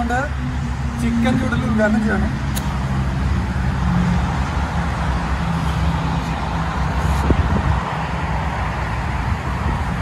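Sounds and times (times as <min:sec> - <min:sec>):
vehicle engine hum: 0:00.0 - 0:10.0
traffic hiss: 0:05.1 - 0:10.0.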